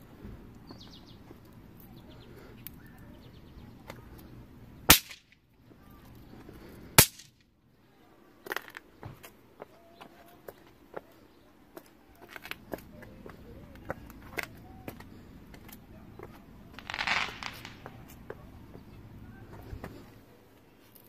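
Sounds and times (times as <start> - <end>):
firework pops and cracks: 4.9 - 5.4, 7.0 - 7.4, 16.8 - 18.2
loud firework hiss: 16.8 - 18.0.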